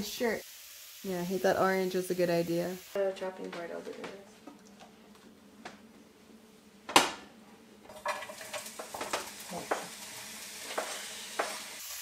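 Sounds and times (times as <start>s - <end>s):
pepper sizzling in frying pan: 0.0s - 5.0s, 7.8s - 12.0s
wooden spatula scraping a pan: 7.9s - 11.9s.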